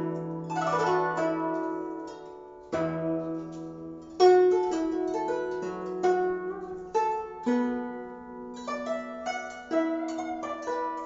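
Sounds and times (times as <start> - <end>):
plucked zither notes: 0.0 - 11.0.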